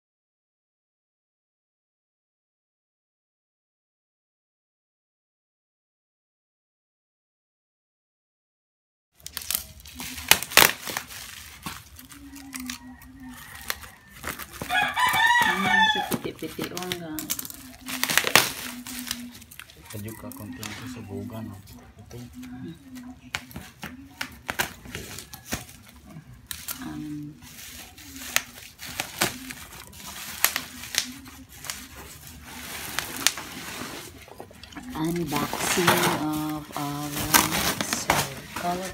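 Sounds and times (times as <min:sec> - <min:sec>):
plastic wrap crinkling and tearing: 0:09.2 - 0:38.9.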